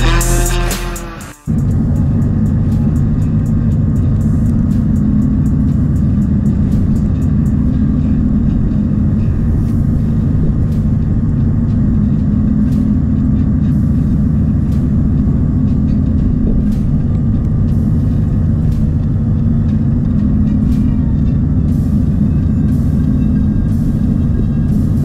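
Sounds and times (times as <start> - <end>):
wind buffeting microphone: 5.3 - 25.0.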